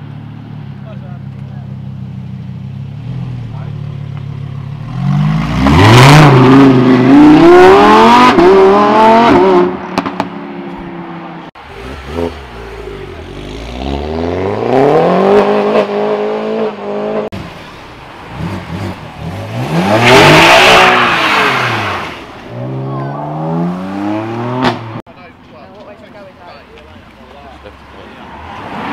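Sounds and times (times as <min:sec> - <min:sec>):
sports car engine revving: 0:02.6 - 0:10.3, 0:11.6 - 0:25.0
car accelerating away: 0:03.0 - 0:10.2, 0:11.6 - 0:25.0.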